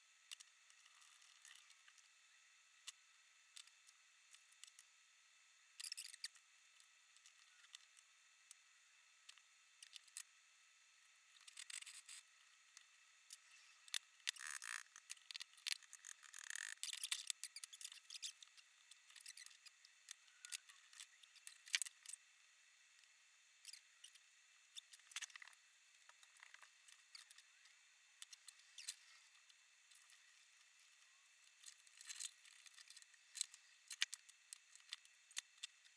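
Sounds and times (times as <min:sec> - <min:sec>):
faint plastic clicks: 0:00.2 - 0:02.2, 0:02.8 - 0:04.9, 0:22.9 - 0:35.9.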